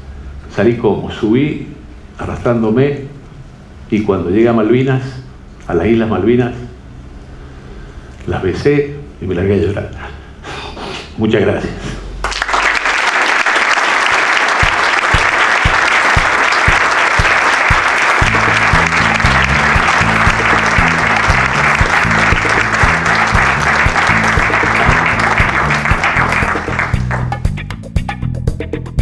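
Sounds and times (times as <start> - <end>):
audience applauding: 12.2 - 27.5
bass line: 14.6 - 29.0
music beat thumps: 14.6 - 29.0.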